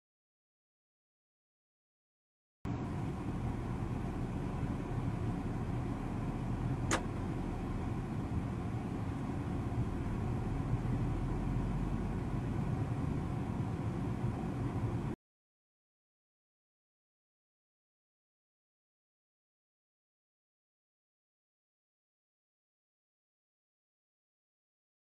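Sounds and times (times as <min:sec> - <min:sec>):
car engine and road noise: 0:02.7 - 0:15.2
sharp click: 0:06.9 - 0:07.1.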